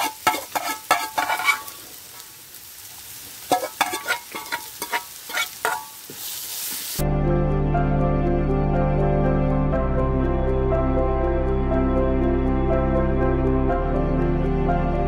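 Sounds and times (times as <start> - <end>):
metal spoon scraping pan: 0.0 - 1.8, 3.5 - 6.2
onions sizzling in hot oil: 0.0 - 7.0
background music: 7.0 - 15.0.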